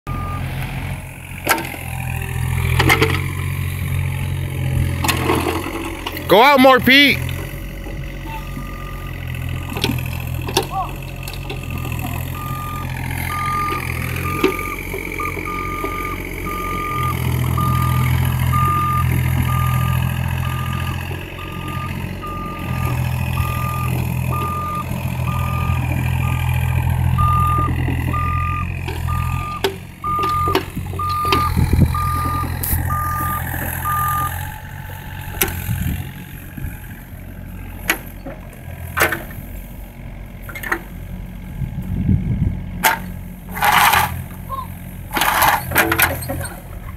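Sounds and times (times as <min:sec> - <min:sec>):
excavator diesel engine running: 0:00.1 - 0:46.9
travel alarm beeping: 0:12.4 - 0:26.4, 0:27.2 - 0:34.4.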